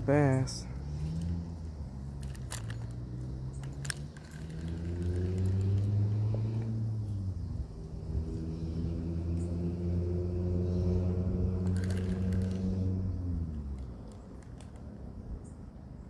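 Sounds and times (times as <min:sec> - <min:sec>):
engine running: 0:00.0 - 0:15.7
sharp clicks: 0:13.5 - 0:15.0.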